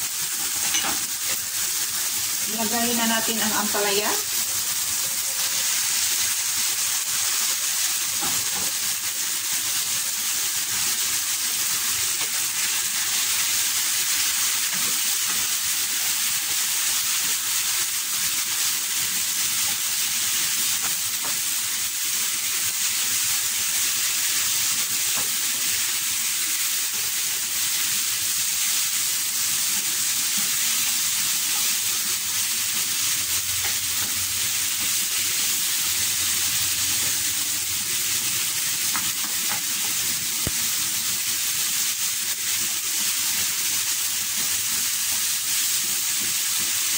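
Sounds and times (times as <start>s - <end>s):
vegetables sizzling in oil: 0.0s - 46.9s.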